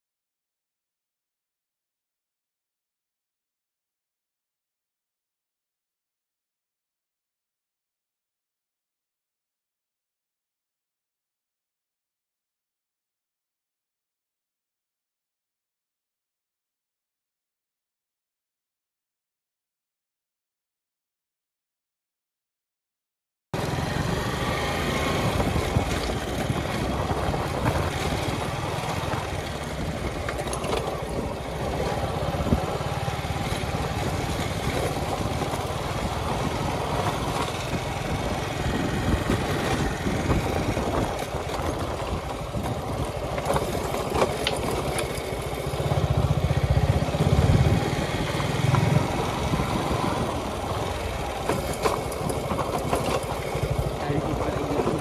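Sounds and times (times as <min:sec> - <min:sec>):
motorcycle engine running: 0:23.6 - 0:55.0.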